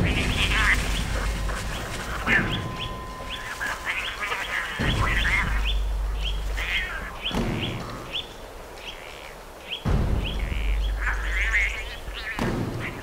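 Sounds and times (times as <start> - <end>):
low rumbling: 0.0 - 8.8, 9.8 - 12.9
bird chirping: 0.0 - 13.0.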